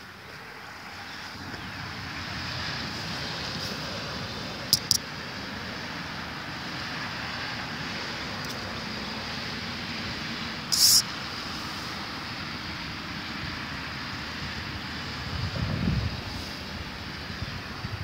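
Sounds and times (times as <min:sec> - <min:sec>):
sharp hiss: 0:10.6 - 0:12.3
wind on microphone: 0:15.2 - 0:18.0.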